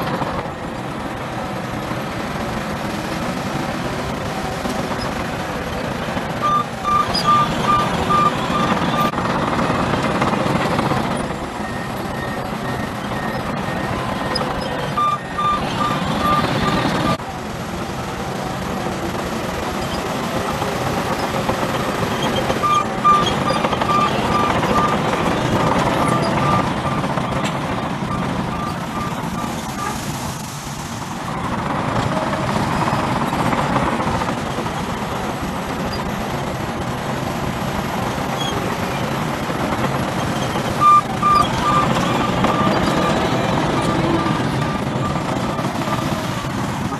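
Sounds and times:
heavy diesel machinery running: 0.0 - 46.9
reversing alarm beeping: 6.4 - 17.2, 21.3 - 30.0, 40.7 - 46.5.

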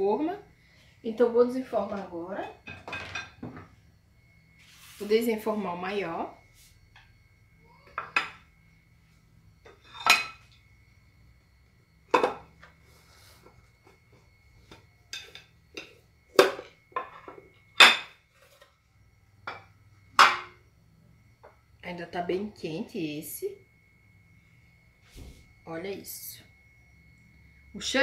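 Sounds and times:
plate and metal pan clattering: 2.7 - 3.6.

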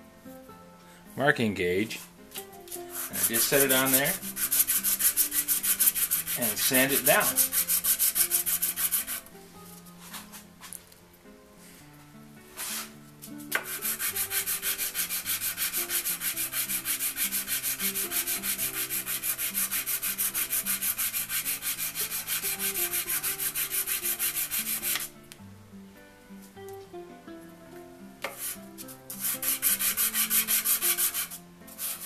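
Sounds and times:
sanding strokes on sandpaper: 2.7 - 9.3, 12.6 - 12.9, 13.5 - 25.1, 28.3 - 32.0.

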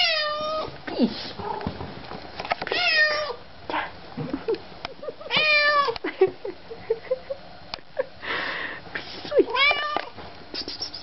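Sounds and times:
cat meowing: 0.0 - 0.7, 2.7 - 3.4, 5.3 - 6.0, 9.5 - 10.1.

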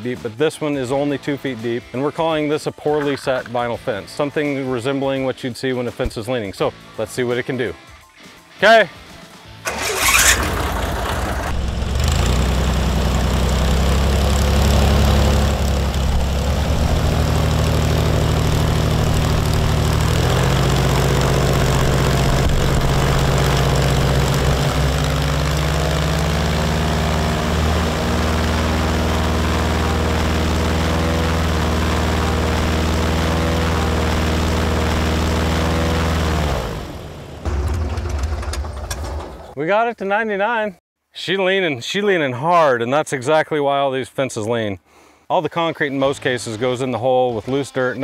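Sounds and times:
airboat engine and propeller drone: 9.7 - 38.5.

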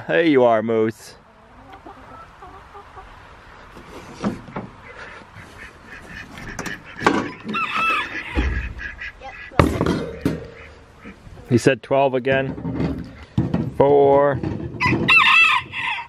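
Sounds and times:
poultry calling: 1.3 - 11.5.

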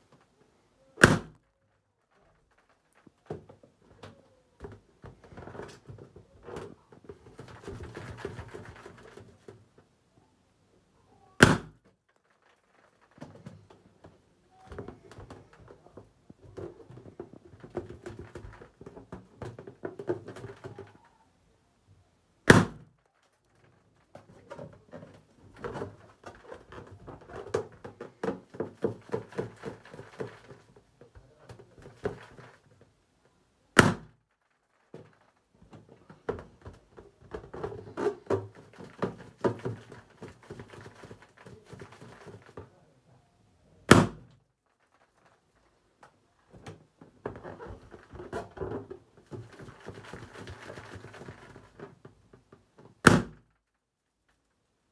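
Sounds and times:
balloon popping: 1.0 - 1.5, 11.4 - 11.9, 22.4 - 23.0, 33.7 - 34.3, 43.8 - 44.4, 53.0 - 53.6
balloons rubbing and squeaking: 47.2 - 52.0.

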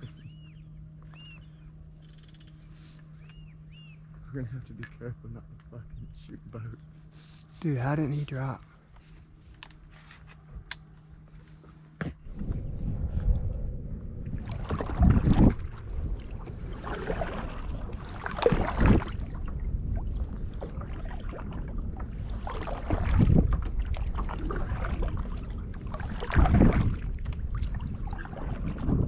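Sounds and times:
wind rumble on microphone: 0.0 - 7.0, 7.8 - 29.0
paddle strokes splashing water: 14.4 - 29.0.

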